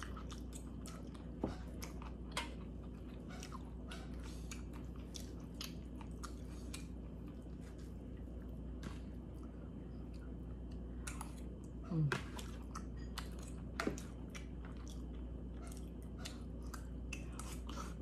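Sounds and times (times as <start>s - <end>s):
person chewing with mouth clicks: 0.0s - 18.0s
steady low hum: 0.0s - 18.0s.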